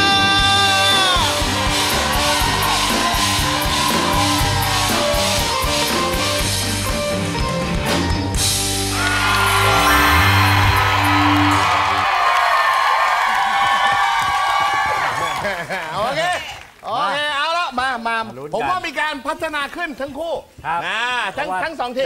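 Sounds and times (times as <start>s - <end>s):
live band with drums and guitar: 0.0s - 12.4s.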